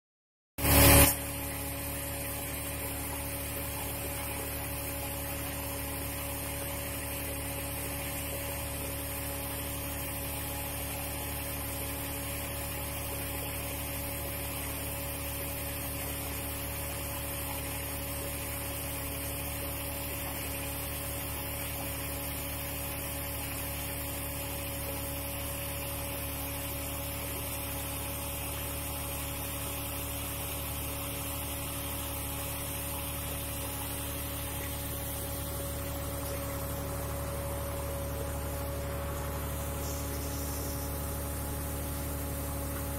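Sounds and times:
machinery humming: 29.6s - 42.9s
even hiss: 38.0s - 41.5s.

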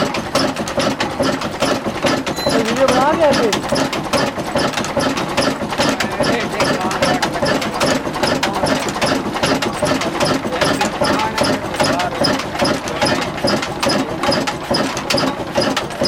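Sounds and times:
engine running with rapid knocking: 0.0s - 16.0s.

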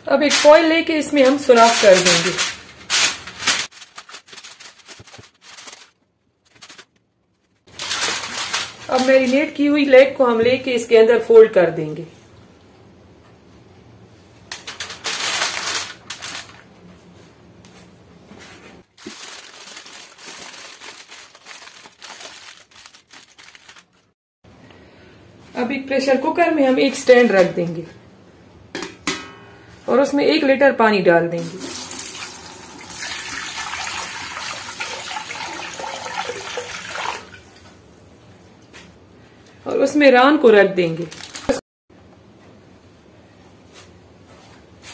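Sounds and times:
aluminium foil crinkling: 0.3s - 9.6s, 14.5s - 16.8s, 18.8s - 24.2s, 40.8s - 41.6s
water pouring into pot: 31.5s - 37.5s.

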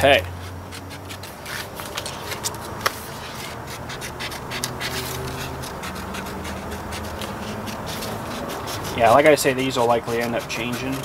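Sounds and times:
paper rustling and scratching: 0.2s - 11.0s
scissors snipping paper: 0.4s - 11.0s.

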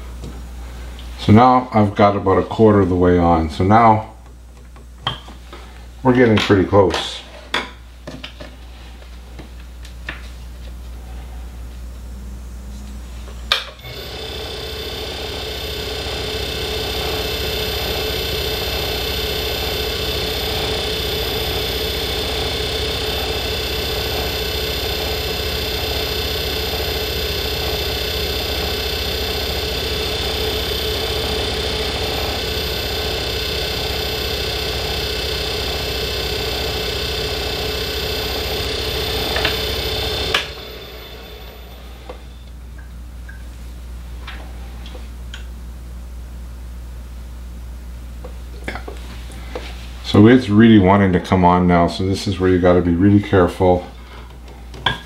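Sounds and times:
lathe motor humming and whining: 13.8s - 42.4s.

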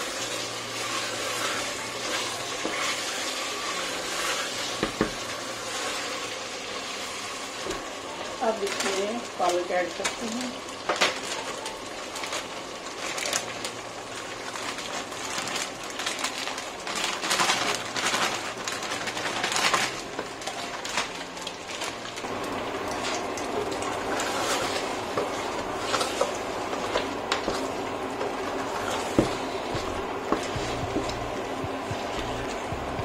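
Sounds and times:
wooden spoon stirring pot: 0.4s - 6.1s, 21.8s - 32.7s
plastic bag rustling and crackling: 7.8s - 33.0s.

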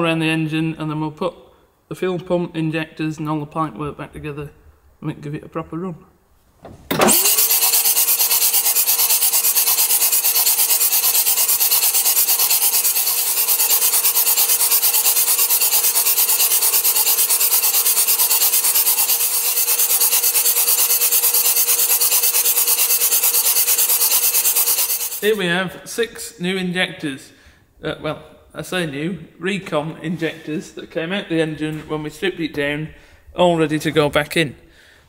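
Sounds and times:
starter motor cranking engine: 6.6s - 25.3s.

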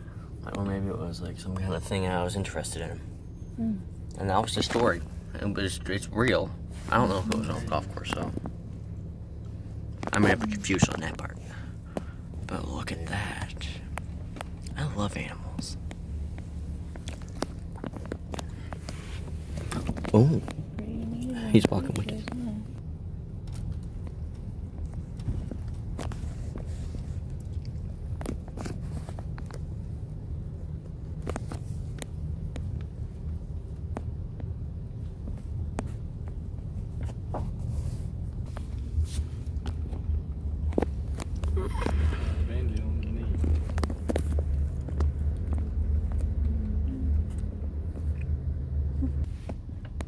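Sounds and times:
car rumbling slowly: 0.0s - 50.0s
sharp clicks and crunches: 15.6s - 20.9s, 23.4s - 30.2s, 43.0s - 46.6s.

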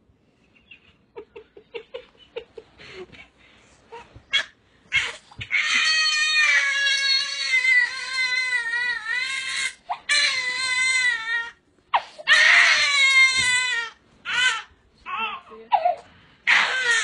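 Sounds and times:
baby crying: 3.9s - 17.0s.

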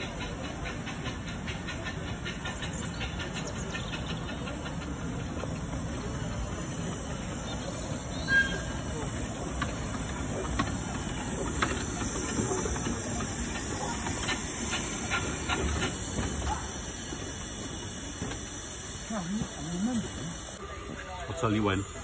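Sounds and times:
steam hissing: 0.0s - 22.0s
train wheels clicking and clanking: 0.0s - 22.0s
sharp squeal: 8.1s - 9.0s.

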